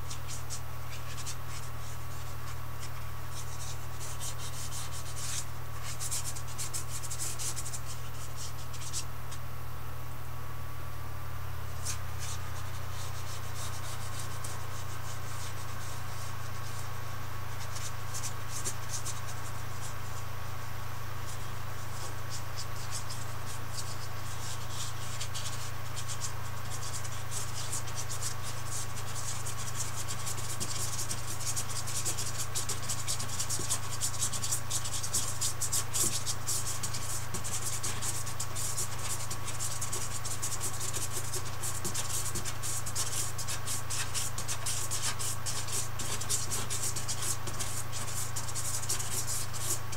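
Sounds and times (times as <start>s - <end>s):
steady low hum: 0.0s - 49.9s
paintbrush scrubbing on canvas: 11.8s - 17.0s, 21.9s - 49.9s.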